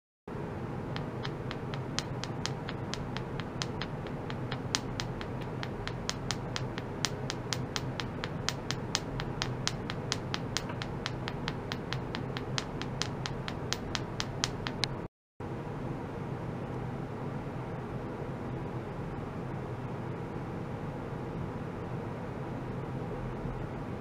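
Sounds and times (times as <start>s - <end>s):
steady low hum: 0.4s - 15.1s
wooden stick tapping metal probe: 1.0s - 15.0s.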